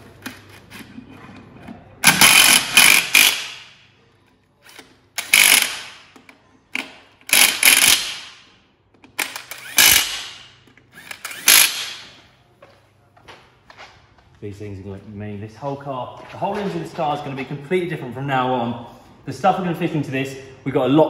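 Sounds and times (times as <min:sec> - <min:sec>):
impact wrench hammering: 0:02.0 - 0:03.8, 0:05.2 - 0:06.1, 0:06.8 - 0:08.5, 0:09.1 - 0:12.2.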